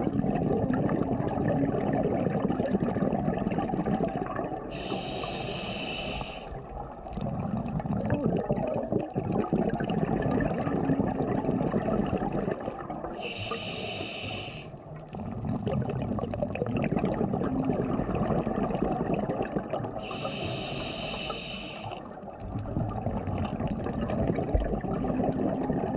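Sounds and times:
bubbling exhalation underwater: 0.0 - 25.9
hissing regulator inhalations: 4.7 - 6.6, 13.2 - 14.8, 20.0 - 22.1.

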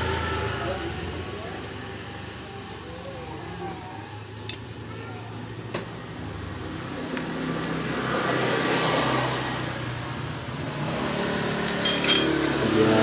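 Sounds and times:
vehicle engine running: 9.8 - 13.0
metal tool clinks: 11.7 - 12.4.

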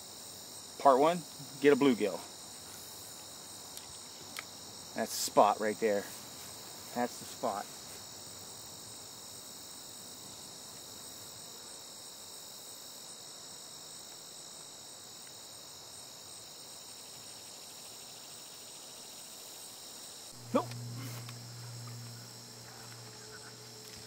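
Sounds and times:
insects trilling: 0.0 - 24.0.

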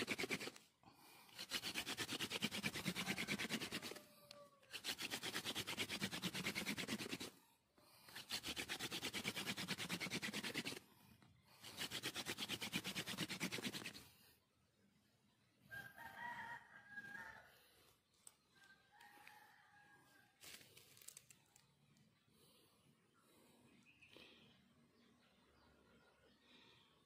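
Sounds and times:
wooden spindle scraping plank: 0.0 - 0.6, 1.3 - 7.3, 8.1 - 10.8, 11.6 - 14.1.

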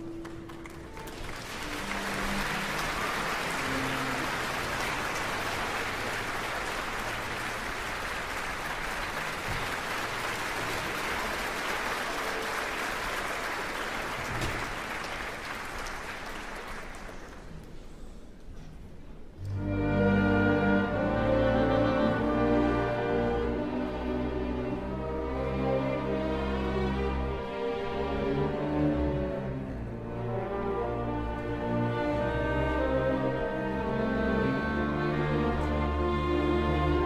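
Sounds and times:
audience applauding: 0.0 - 17.7.

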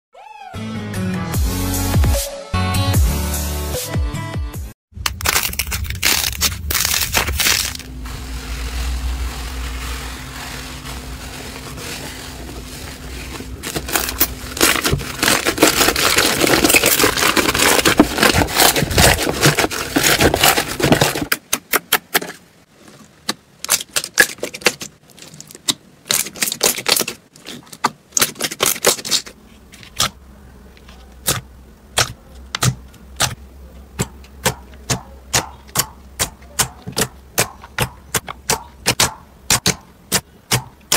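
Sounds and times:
slime crackling: 5.0 - 21.3
slime squelching: 5.2 - 21.3.

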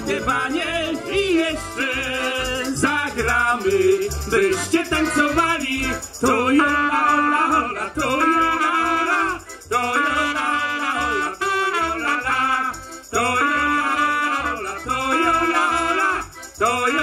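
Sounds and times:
accordion: 0.0 - 17.0
double bass: 0.0 - 17.0
clarinet: 5.0 - 17.0.

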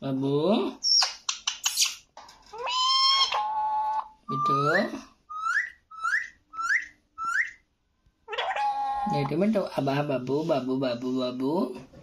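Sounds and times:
parakeet whistling and chirping: 0.8 - 2.0, 2.6 - 7.7, 8.3 - 9.3.

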